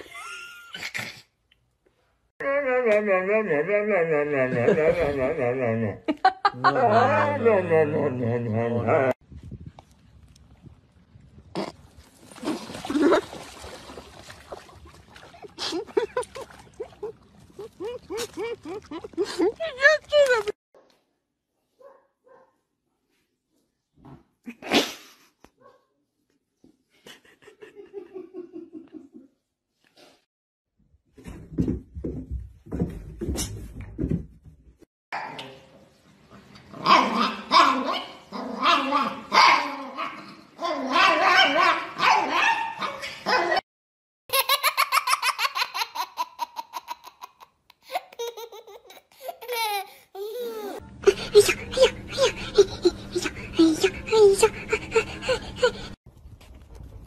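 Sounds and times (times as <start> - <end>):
wailing voice: 2.4 - 6.0, 6.6 - 9.2.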